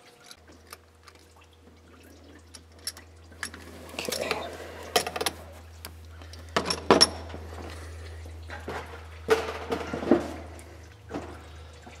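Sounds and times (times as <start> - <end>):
steady low hum: 0.3 - 12.0
clattering and rustling: 8.5 - 11.4.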